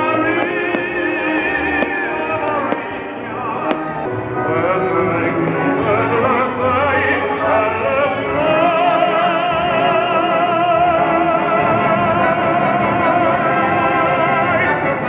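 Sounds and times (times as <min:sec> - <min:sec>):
operatic singing: 0:00.0 - 0:15.0
orchestral accompaniment: 0:00.0 - 0:15.0.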